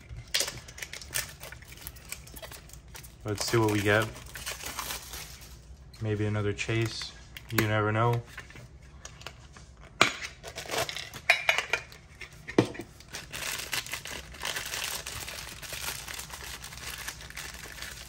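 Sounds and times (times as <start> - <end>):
plastic bag crinkling: 0.0 - 5.9, 12.9 - 18.0.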